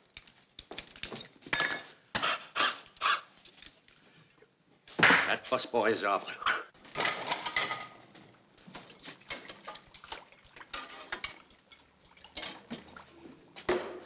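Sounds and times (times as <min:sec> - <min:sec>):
pots and pans clattering: 0:06.9 - 0:08.1, 0:10.6 - 0:11.6, 0:12.3 - 0:12.9.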